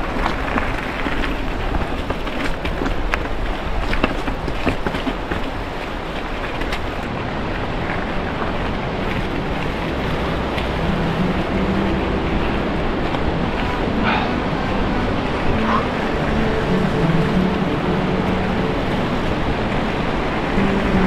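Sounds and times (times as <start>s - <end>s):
bike tyres knocking on rocks: 0.0s - 7.0s
steady rushing noise: 0.0s - 21.0s.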